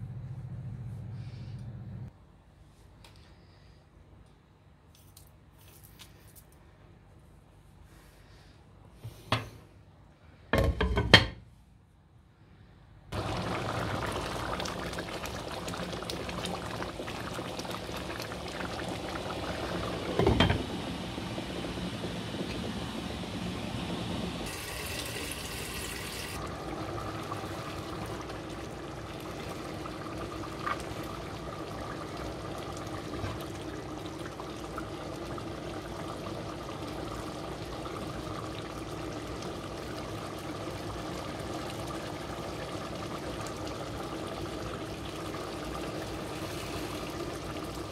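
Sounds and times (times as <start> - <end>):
thick stew bubbling in pot: 13.1 - 47.9
steady hum: 13.2 - 38.8.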